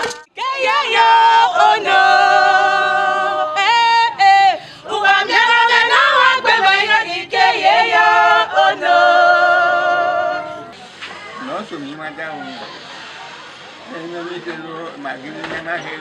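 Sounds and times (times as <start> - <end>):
women singing together: 0.0 - 10.8.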